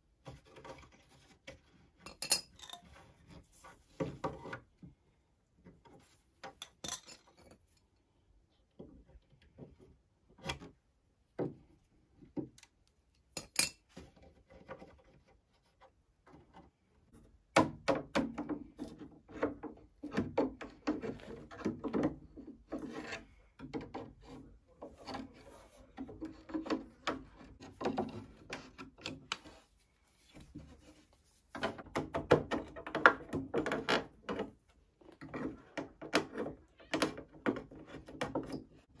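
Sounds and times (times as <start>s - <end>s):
chisel scraping wood: 22.6s - 29.6s.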